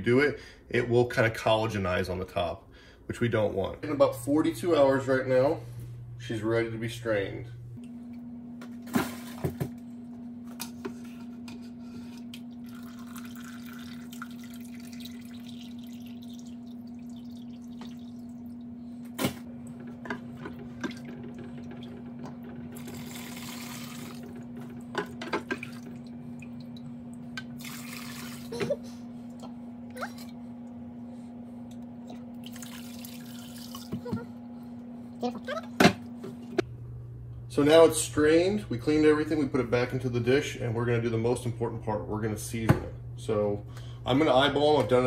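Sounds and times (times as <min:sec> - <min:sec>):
steady low hum: 0:00.0 - 0:45.0
liquid pouring and splashing: 0:12.3 - 0:19.3, 0:22.8 - 0:24.3, 0:25.4 - 0:26.9, 0:27.5 - 0:28.6, 0:32.0 - 0:34.0.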